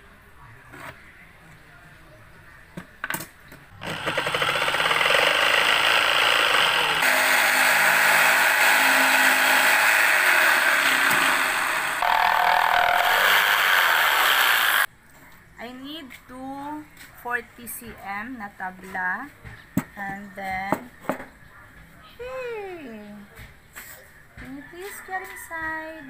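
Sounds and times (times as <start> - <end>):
electric jigsaw sawing wood: 3.8 - 14.9.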